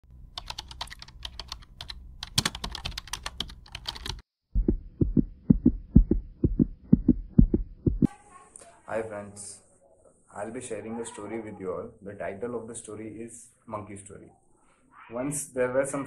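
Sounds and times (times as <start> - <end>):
keyboard typing: 0.4 - 4.2
heartbeat thumps: 4.5 - 8.1.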